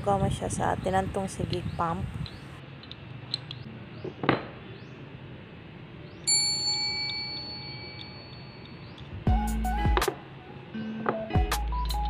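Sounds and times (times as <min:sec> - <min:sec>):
electronic bell ding: 0:06.3 - 0:08.8.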